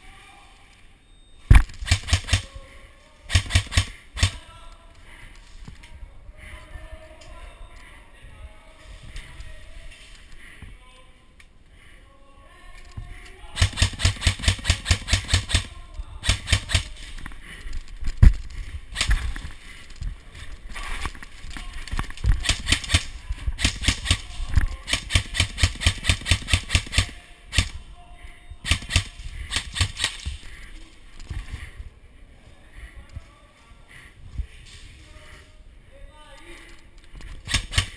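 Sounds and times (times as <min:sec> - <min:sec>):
airsoft rifles full-auto bursts: 0:01.7 - 0:02.5, 0:03.3 - 0:04.5, 0:13.6 - 0:17.1, 0:22.3 - 0:27.8, 0:28.6 - 0:30.5, 0:37.4 - 0:37.9.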